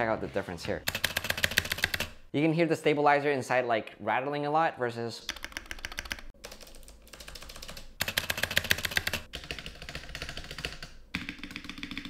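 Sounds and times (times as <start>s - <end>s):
mechanical keyboard clacking: 0.9s - 2.1s, 5.3s - 12.0s.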